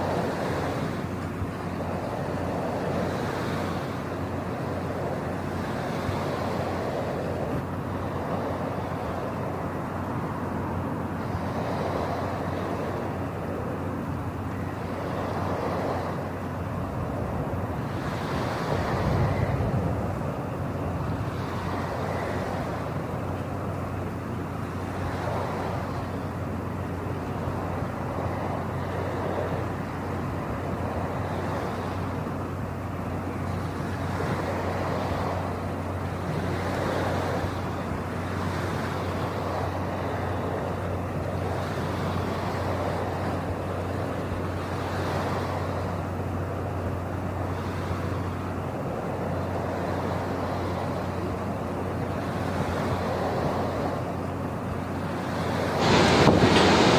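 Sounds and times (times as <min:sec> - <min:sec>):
low machinery hum: 0:00.0 - 0:56.9
rushing noise: 0:55.3 - 0:56.9.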